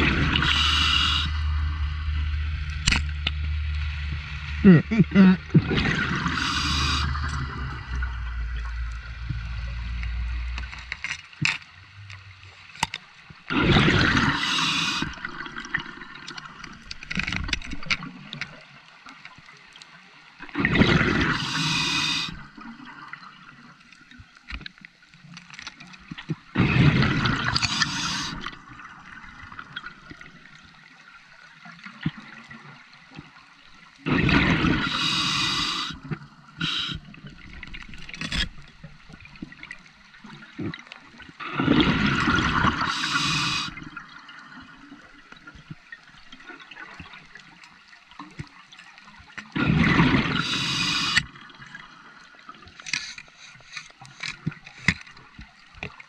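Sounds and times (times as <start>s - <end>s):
exhaled bubbles underwater: 0.0s - 2.9s, 3.8s - 11.0s, 13.4s - 16.9s, 20.4s - 23.6s, 26.4s - 30.8s, 31.8s - 47.4s, 49.4s - 52.3s.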